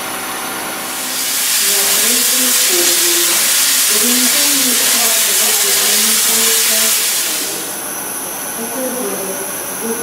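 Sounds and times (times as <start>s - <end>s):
steam locomotive venting steam: 0.8s - 8.6s.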